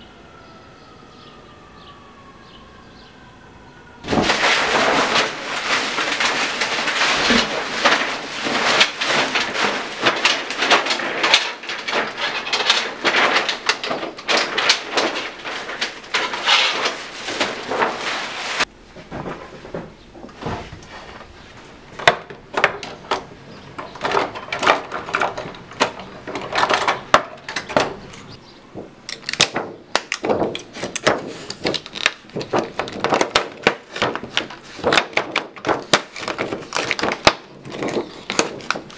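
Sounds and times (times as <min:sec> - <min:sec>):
stiff skin sheet crackling and rustling: 0:04.0 - 0:19.7, 0:29.3 - 0:38.9
workshop handling clicks and taps: 0:22.0 - 0:38.9.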